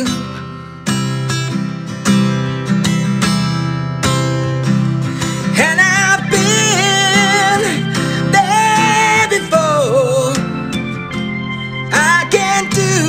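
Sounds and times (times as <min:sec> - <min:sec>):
acoustic guitar strumming: 0:00.0 - 0:13.0
wavering melody line: 0:05.5 - 0:13.0.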